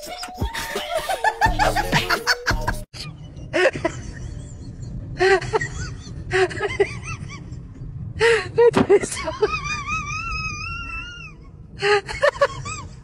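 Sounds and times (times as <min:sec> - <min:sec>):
music: 0:00.0 - 0:02.9
people laughing: 0:00.0 - 0:07.4.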